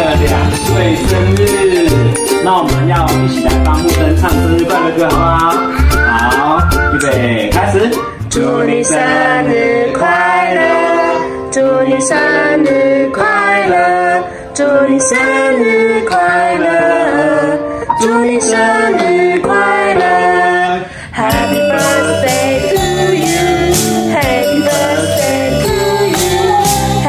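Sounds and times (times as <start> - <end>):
guitar accompaniment: 0.0 - 13.9, 21.2 - 27.0
person singing: 0.0 - 27.0.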